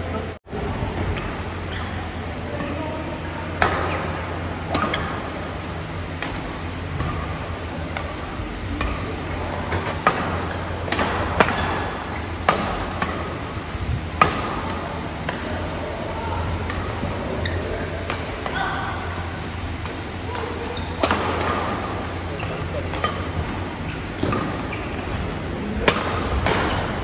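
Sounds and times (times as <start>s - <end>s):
steady low hum: 0.0s - 27.0s
rackets hitting shuttlecock: 3.6s - 13.4s, 14.2s - 15.6s, 18.0s - 27.0s.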